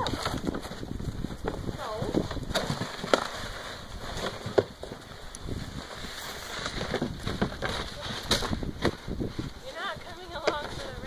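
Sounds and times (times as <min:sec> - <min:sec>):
plastic sled dragged on snow: 0:00.0 - 0:11.0.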